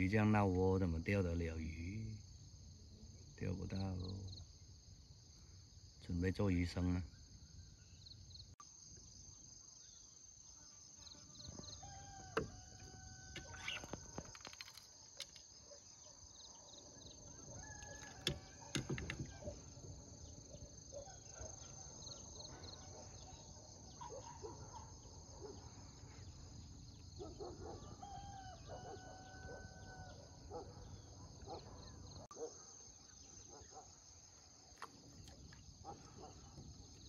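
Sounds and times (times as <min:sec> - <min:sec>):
high insect drone: 0:00.0 - 0:37.0
faint rooster crowing: 0:11.4 - 0:14.3, 0:17.3 - 0:19.6, 0:27.6 - 0:30.4.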